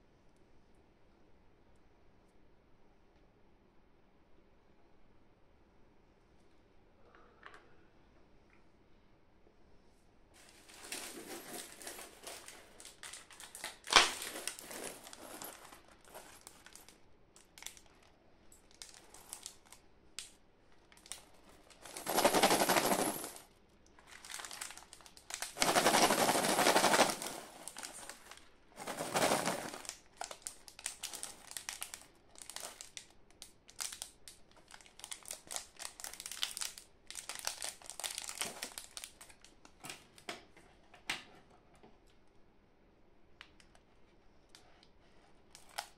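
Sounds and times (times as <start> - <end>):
candy packets crinkling: 10.4 - 23.4, 24.0 - 39.8.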